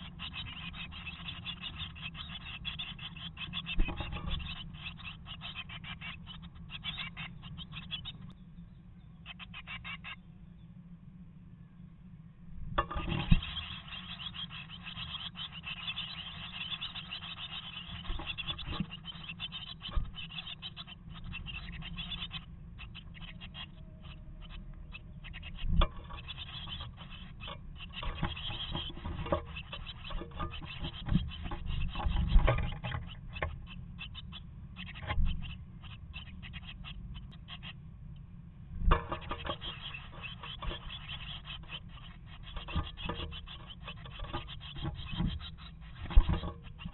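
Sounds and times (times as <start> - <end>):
nestlings scratching and rustling: 12.9 - 37.7, 38.9 - 46.9.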